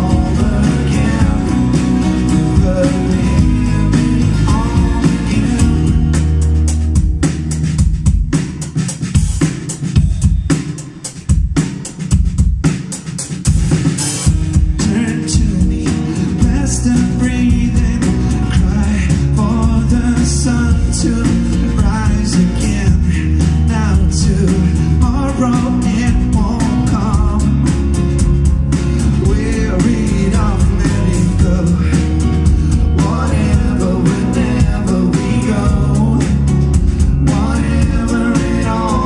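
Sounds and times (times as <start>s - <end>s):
man singing: 0.0s - 6.4s, 14.7s - 27.8s, 29.1s - 39.0s
acoustic rock band playing: 0.0s - 39.0s.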